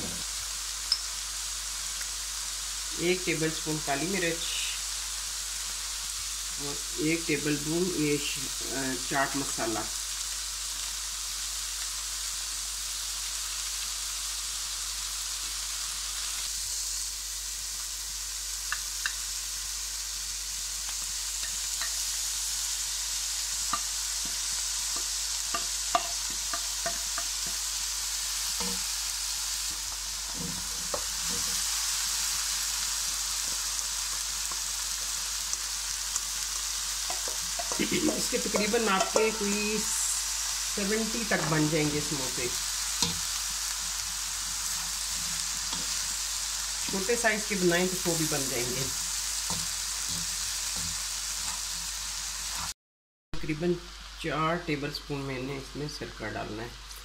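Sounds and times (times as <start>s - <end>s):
onions sizzling in oil: 0.0s - 52.8s, 53.4s - 57.0s
spatula scraping pan: 29.7s - 33.7s, 37.0s - 40.1s, 40.9s - 52.7s.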